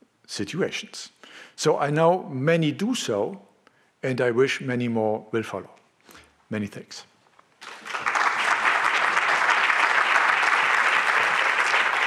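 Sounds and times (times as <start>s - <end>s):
audience applauding: 7.6s - 12.0s.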